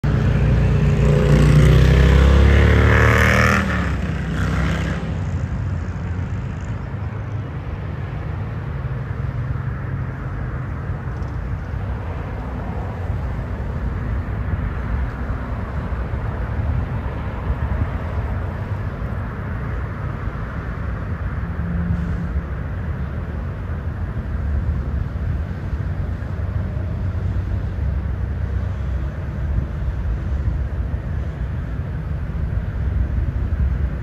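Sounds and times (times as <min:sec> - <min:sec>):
locomotive passing loudly: 0:00.0 - 0:06.7
train cars rumbling past: 0:00.0 - 0:34.0.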